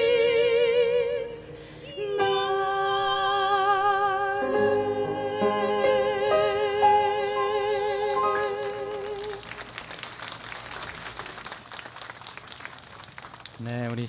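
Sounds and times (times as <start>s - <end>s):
singers holding notes: 0.0s - 11.2s
audience applauding: 8.2s - 14.0s.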